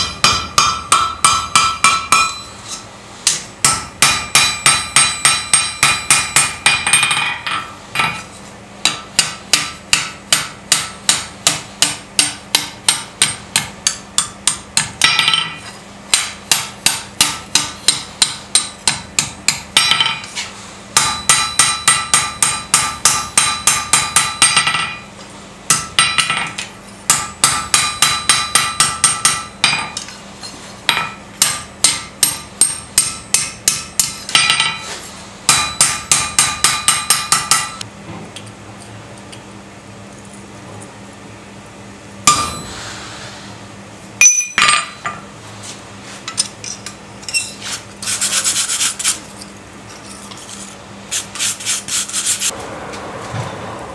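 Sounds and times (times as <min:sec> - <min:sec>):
hammer striking steel on anvil: 0:00.0 - 0:30.2, 0:30.9 - 0:37.9, 0:42.2 - 0:43.3, 0:44.2 - 0:45.3.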